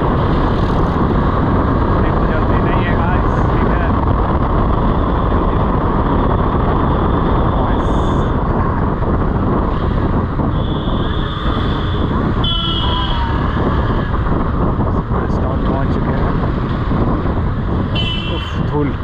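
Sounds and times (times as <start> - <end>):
motorcycle engine: 0.0 - 19.0
wind rumble on microphone: 0.0 - 19.0
vehicle horns honking: 10.5 - 13.5, 17.9 - 18.6.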